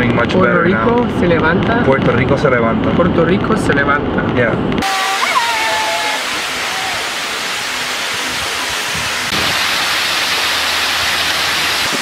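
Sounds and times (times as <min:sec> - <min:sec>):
waterfall splashing onto rock: 0:04.8 - 0:12.0.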